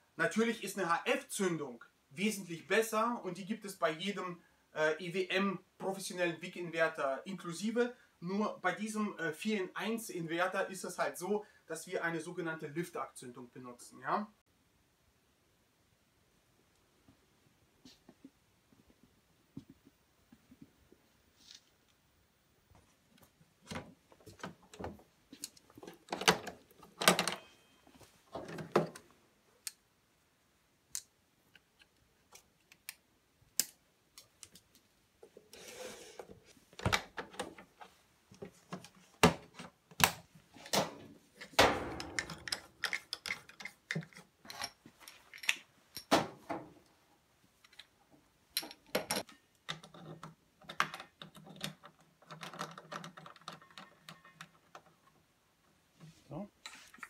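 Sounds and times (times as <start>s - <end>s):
compartment door opening: 25.9s - 27.5s, 40.0s - 44.1s
hands clicking and rattling on welder: 41.4s - 44.7s.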